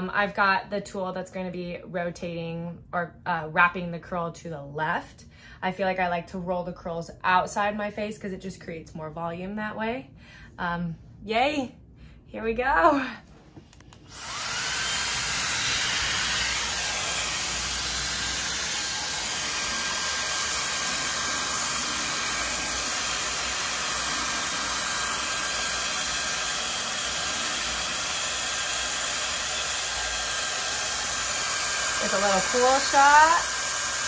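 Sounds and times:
hair dryer brush blowing air: 0:14.0 - 0:34.0.

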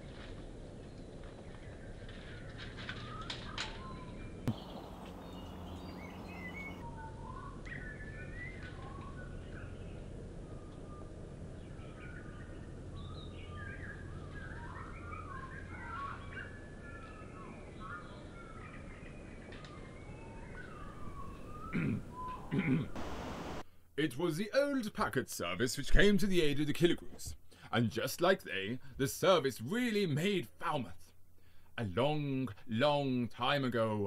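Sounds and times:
birds chirping and singing: 0:03.0 - 0:10.0, 0:11.8 - 0:23.5
low background rumble: 0:04.4 - 0:06.9.

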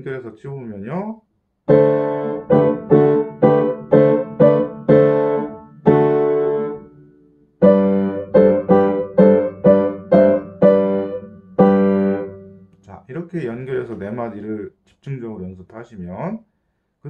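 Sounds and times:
piano hymn chords: 0:01.7 - 0:12.7.

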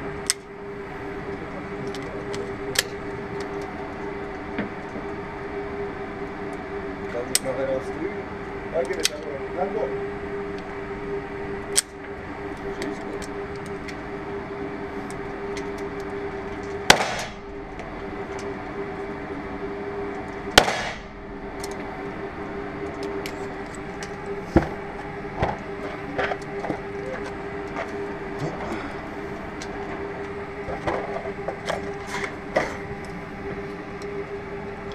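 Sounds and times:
steady hum: 0:00.0 - 0:34.9
pistol shots with echo: 0:16.9 - 0:17.4, 0:20.6 - 0:21.1.

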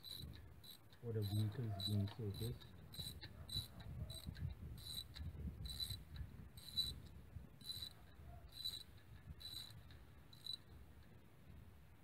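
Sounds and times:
ratchet wrench clicking: 0:00.0 - 0:07.0, 0:07.6 - 0:08.0, 0:08.6 - 0:10.6.

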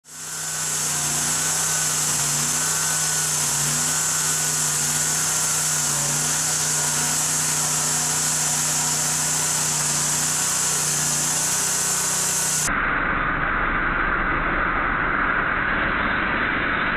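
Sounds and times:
saw blade hissing through wood: 0:00.0 - 0:12.7
sawmill engine running: 0:00.0 - 0:12.7.

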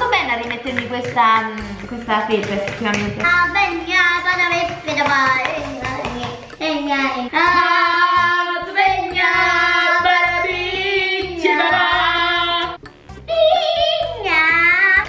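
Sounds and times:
child singing high notes: 0:13.3 - 0:15.0.

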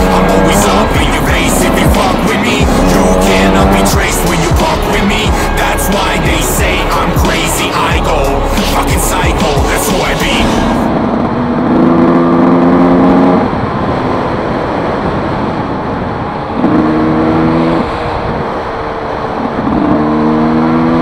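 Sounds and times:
two-stroke motorbike engine revving: 0:00.0 - 0:13.4
wind rush on helmet microphone: 0:10.8 - 0:20.2.

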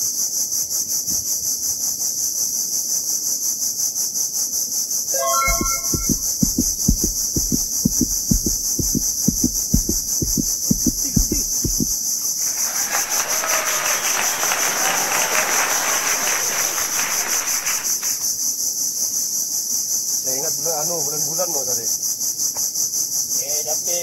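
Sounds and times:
low thumps: 0:05.4 - 0:12.0.

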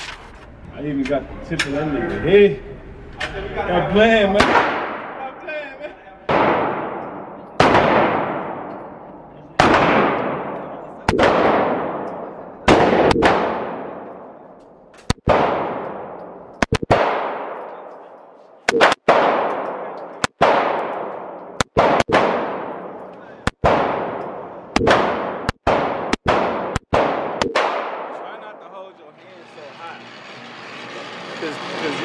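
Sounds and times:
handgun shots echoing: 0:18.7 - 0:28.2.

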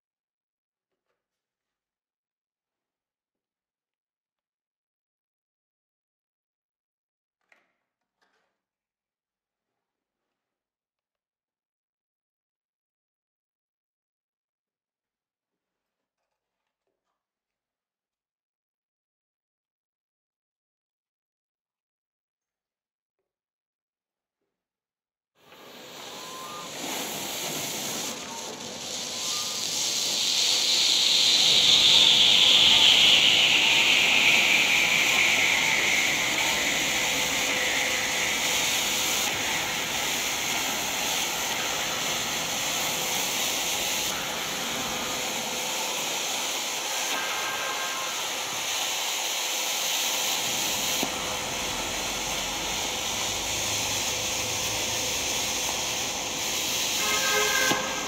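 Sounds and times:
smoke bomb hissing: 0:25.4 - 0:58.0.

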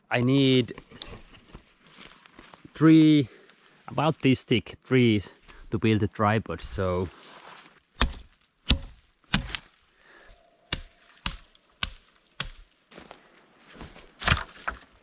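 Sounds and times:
axe chopping tree trunk: 0:08.0 - 0:09.8, 0:10.7 - 0:12.7, 0:14.2 - 0:15.0.

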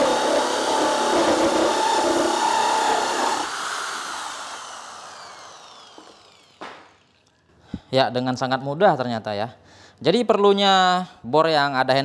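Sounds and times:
holesaw grinding through plywood: 0:00.0 - 0:06.7
drill motor spinning down: 0:00.0 - 0:07.2.

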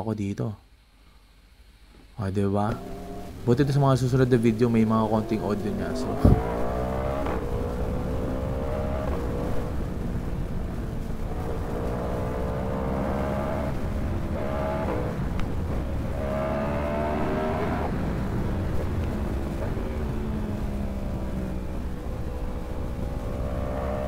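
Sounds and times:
motorcycle accelerating through gears: 0:02.7 - 0:24.0
wind noise on microphone: 0:05.9 - 0:12.8.

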